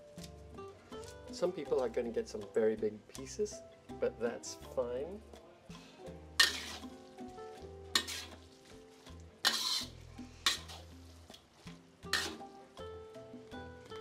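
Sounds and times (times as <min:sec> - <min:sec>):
metal spatula scraping a wok: 0:06.4 - 0:07.2, 0:07.9 - 0:12.6.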